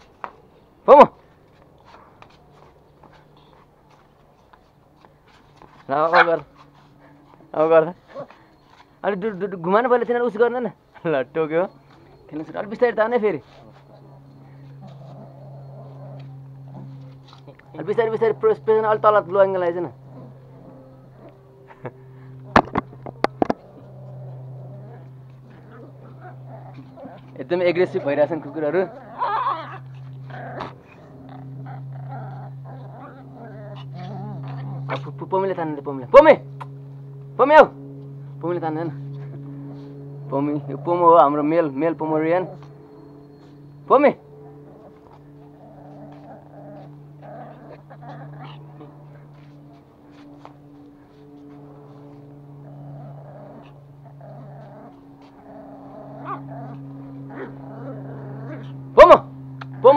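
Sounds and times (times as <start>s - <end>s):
puppies growling: 3.0s - 37.0s, 38.2s - 59.9s.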